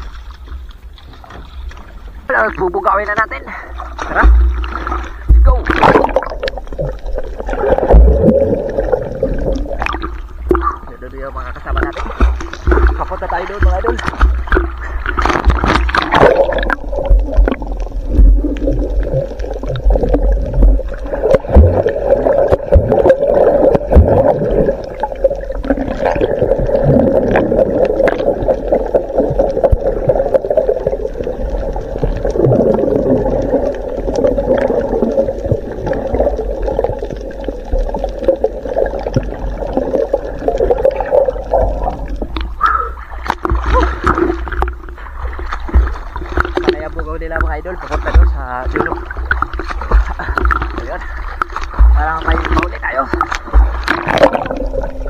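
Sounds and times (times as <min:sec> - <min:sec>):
water sloshing and gurgling: 0:00.0 - 0:55.0
small knocks and splashes: 0:03.1 - 0:10.9, 0:11.6 - 0:31.0, 0:43.2 - 0:55.0.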